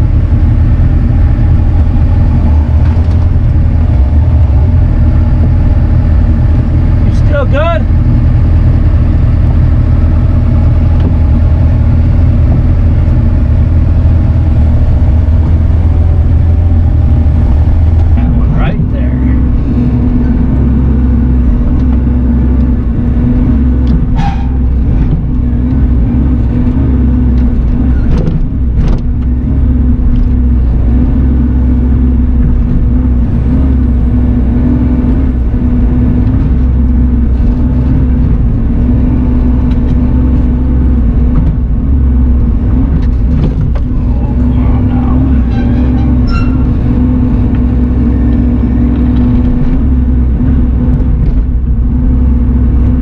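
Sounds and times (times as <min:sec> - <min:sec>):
diesel engine running under load: 0:00.0 - 0:53.0.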